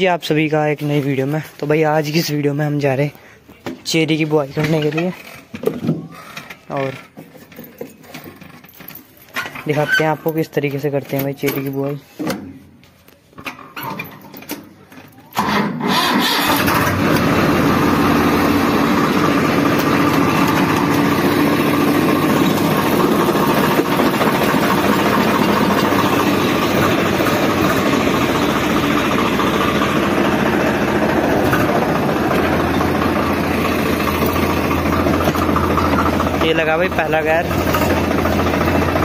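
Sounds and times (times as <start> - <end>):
tractor diesel engine idling: 0.0 - 5.1, 15.9 - 39.0.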